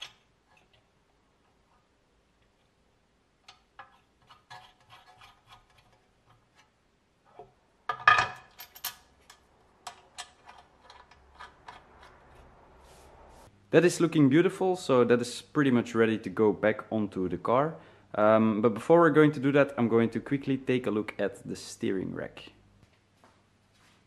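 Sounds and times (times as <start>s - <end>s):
metal parts clicking: 8.1s - 12.4s.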